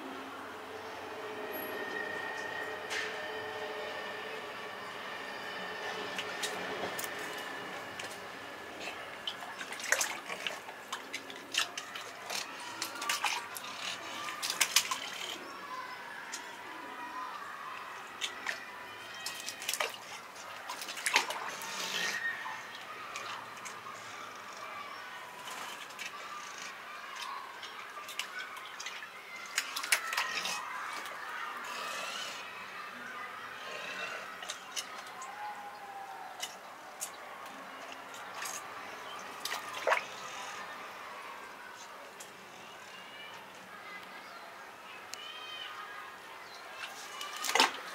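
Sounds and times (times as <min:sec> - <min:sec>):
light water splashing: 0:08.8 - 0:15.3, 0:34.3 - 0:42.4, 0:46.6 - 0:47.9
water splashing in plastic bucket: 0:09.2 - 0:13.6, 0:46.8 - 0:47.9.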